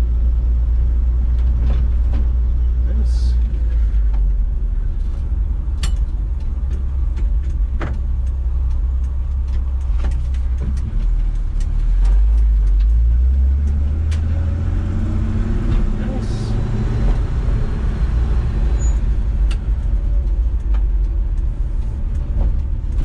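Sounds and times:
truck engine rumbling: 0.0s - 23.0s
light clicks and ticks: 5.0s - 14.4s, 18.0s - 23.0s.

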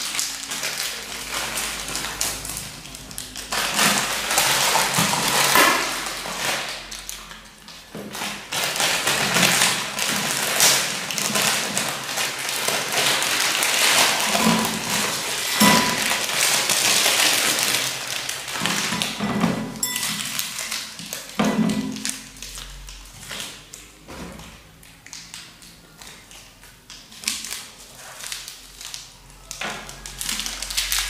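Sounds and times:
plastic packets crinkling and tearing: 0.0s - 31.0s
sachets ripped open: 8.1s - 19.2s, 25.0s - 31.0s.

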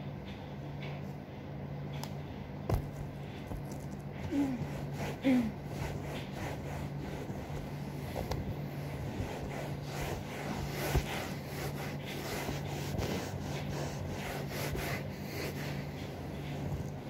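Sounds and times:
steady low hum: 0.0s - 17.0s
hand scrubbing sofa surface: 3.1s - 17.0s.

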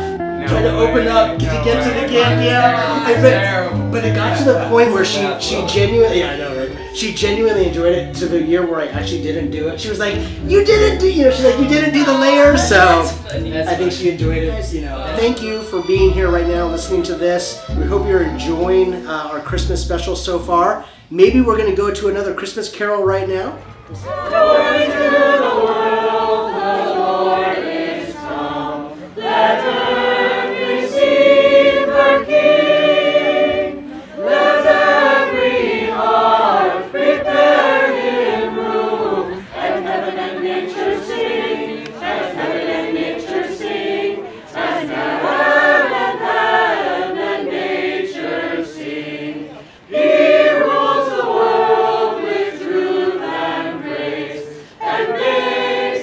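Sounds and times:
group singing a carol: 0.0s - 19.7s, 23.6s - 56.0s.

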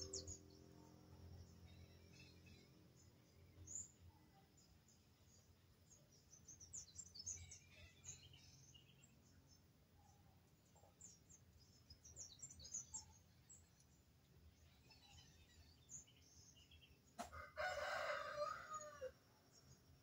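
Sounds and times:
small birds chirping: 0.0s - 20.0s
rooster crowing: 17.2s - 19.2s.

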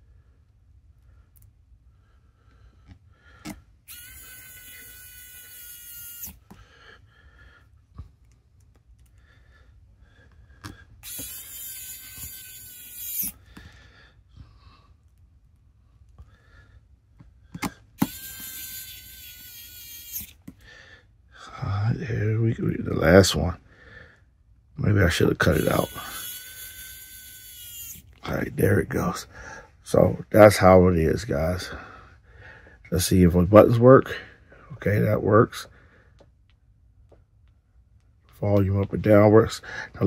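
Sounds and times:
electric screwdriver whine: 3.9s - 6.5s, 11.0s - 13.4s, 18.0s - 20.4s, 25.5s - 28.2s.

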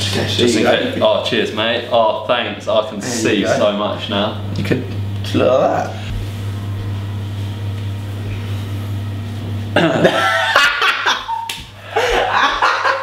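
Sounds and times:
steady low hum: 0.0s - 13.0s
men laughing loudly: 9.8s - 13.0s.

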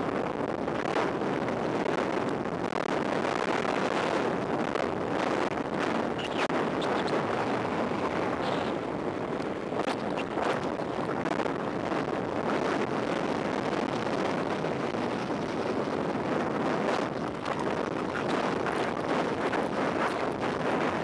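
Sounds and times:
wind rushing over microphone: 0.0s - 21.0s.

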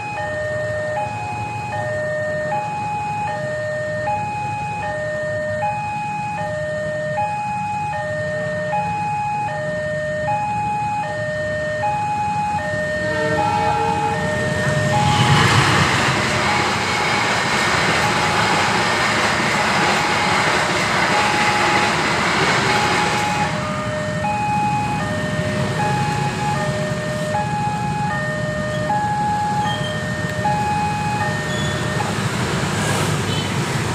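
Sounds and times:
level crossing two-tone alarm: 0.0s - 32.2s
train rushing past: 12.6s - 27.9s, 28.6s - 33.9s.

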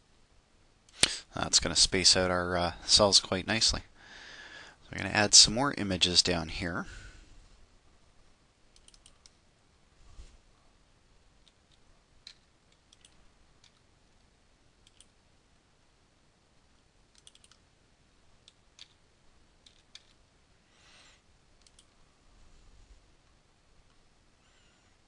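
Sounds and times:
faint mouse clicks: 8.7s - 9.4s, 11.4s - 15.2s, 16.8s - 17.6s, 21.6s - 21.9s.

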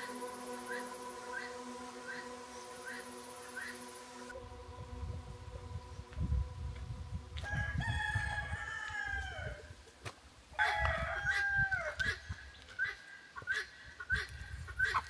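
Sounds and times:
rooster crowing: 7.4s - 9.7s, 10.6s - 12.0s.

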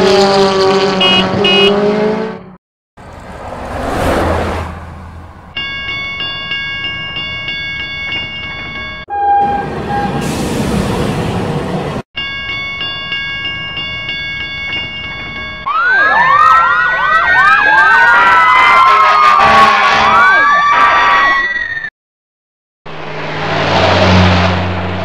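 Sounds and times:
level crossing bell ringing: 5.6s - 9.1s, 12.2s - 15.7s
train horn toots: 9.1s - 10.3s, 18.9s - 20.3s
train rushing past: 9.4s - 12.0s
fire engine sirens wailing: 15.6s - 21.8s.

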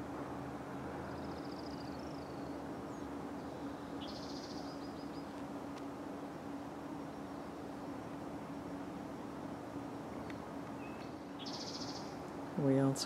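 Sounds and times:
low hum: 0.0s - 13.0s
steady background hiss: 0.0s - 13.0s
songbird trilling: 1.2s - 5.4s, 10.8s - 12.2s.

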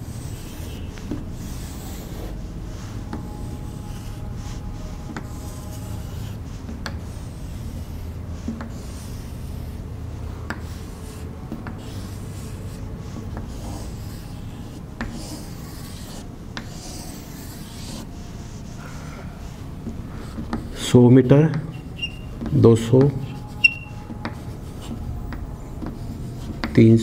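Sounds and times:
chalk scratching on chalkboard: 0.0s - 27.0s
chalk ticking on board: 5.0s - 9.7s, 10.4s - 18.1s.

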